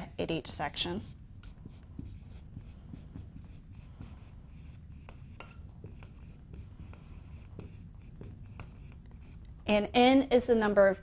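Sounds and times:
marker squeaking on whiteboard: 0:01.0 - 0:09.4
marker tapping on whiteboard: 0:01.4 - 0:09.4.

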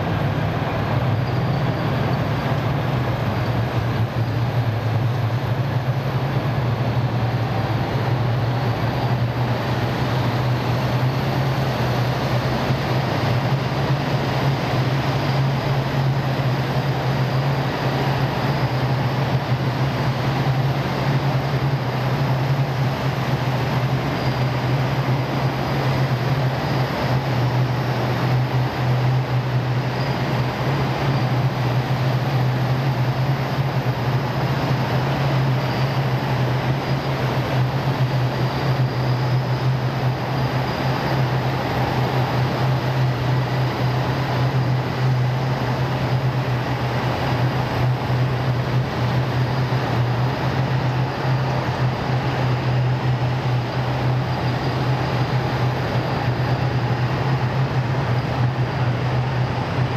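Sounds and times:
heavy engines humming: 0:00.0 - 0:59.9
tracks and tyres rumbling on road: 0:00.0 - 0:59.9.

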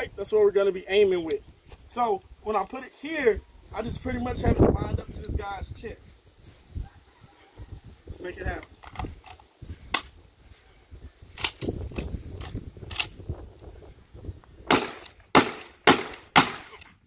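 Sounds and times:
shotgun shots: 0:14.7 - 0:16.8.

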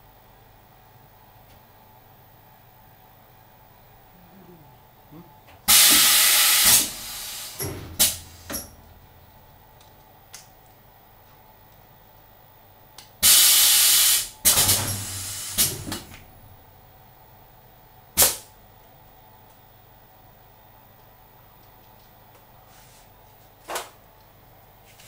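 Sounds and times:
compressed air blast hissing: 0:05.7 - 0:08.6, 0:13.2 - 0:15.9
pneumatic machine clicks and knocks: 0:14.5 - 0:16.2.

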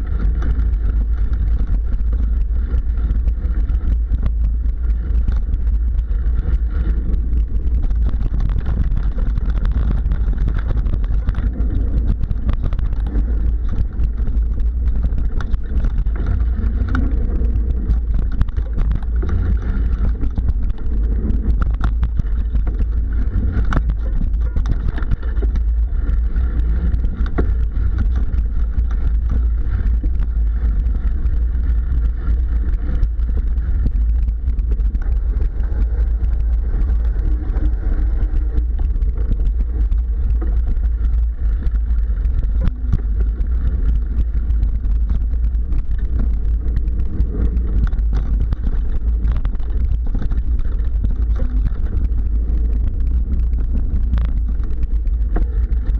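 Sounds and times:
bike clicks and rattles: 0:00.0 - 0:55.9
wind rumble on microphone: 0:00.0 - 0:55.9.

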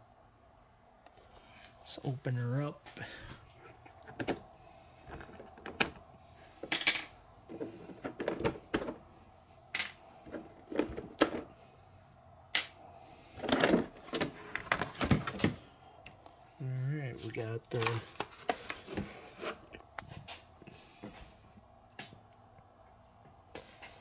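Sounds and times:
plastic shell rattling and scraping: 0:03.7 - 0:04.4, 0:05.1 - 0:06.0, 0:07.5 - 0:09.0, 0:10.2 - 0:11.5, 0:13.4 - 0:15.6.

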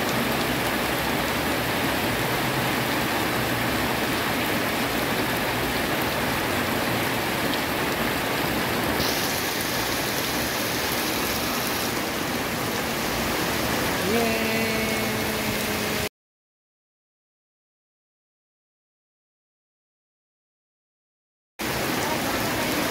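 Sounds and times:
heavy rain pouring: 0:00.0 - 0:16.1, 0:21.6 - 0:22.9.

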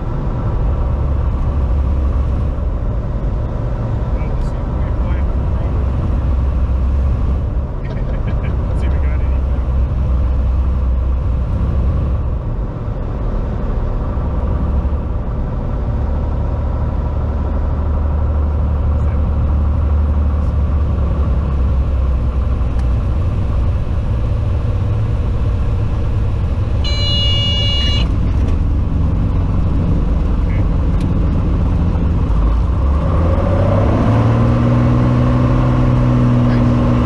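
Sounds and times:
airplane engine and propeller rumble: 0:00.0 - 0:37.0
brief high-pitched tone: 0:26.8 - 0:28.1.

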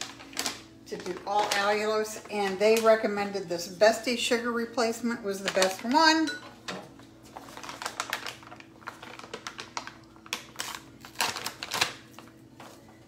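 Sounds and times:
plastic pouch crinkling: 0:00.0 - 0:03.0, 0:07.2 - 0:12.9.

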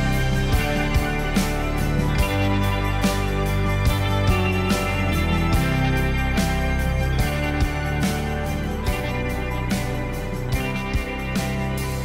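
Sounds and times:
guitar-led background music: 0:00.0 - 0:12.0.

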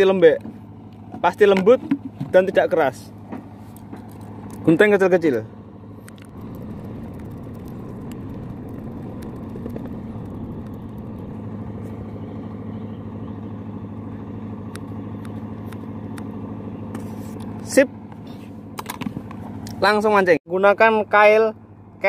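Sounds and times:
low engine drone: 0:00.0 - 0:22.0.

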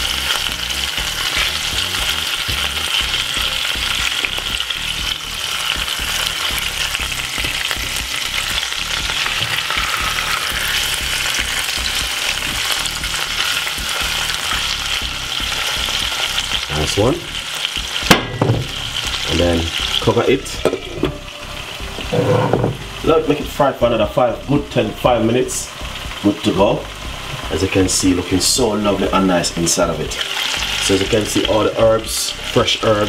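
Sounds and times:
fish sizzling in oil: 0:00.0 - 0:33.0
spatula turning fillets: 0:00.1 - 0:16.7.

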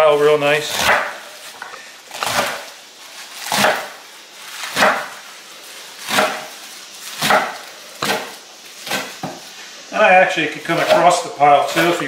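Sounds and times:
knife chopping leaves on wooden board: 0:00.7 - 0:01.5, 0:02.1 - 0:02.7, 0:03.4 - 0:05.2, 0:06.0 - 0:09.5, 0:10.7 - 0:11.1.

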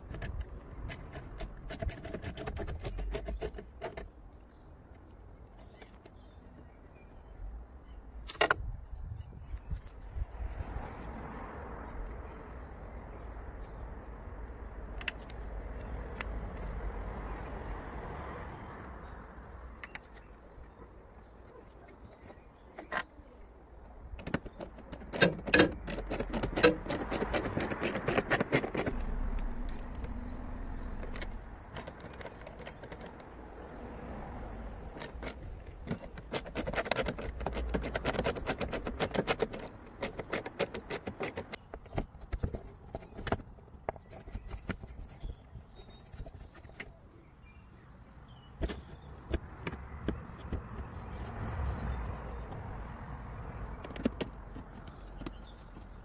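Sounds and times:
ratchet clicking: 0:24.3 - 0:33.4, 0:34.9 - 0:41.6.

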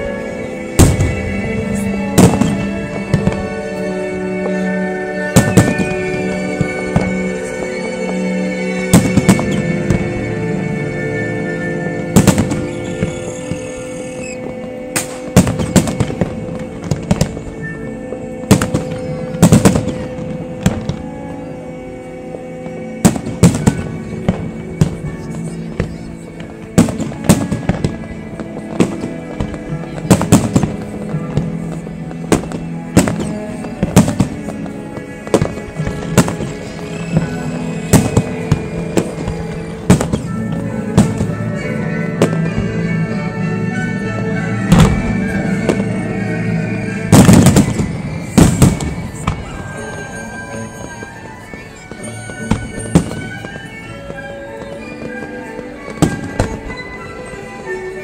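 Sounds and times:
fireworks bursting: 0:00.0 - 0:58.0
music: 0:00.0 - 0:58.0.

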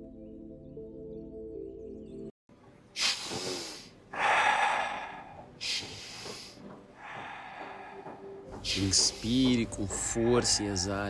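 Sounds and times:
sharp hissing in-breaths: 0:03.0 - 0:08.3
relaxed out-breaths: 0:03.0 - 0:09.5.

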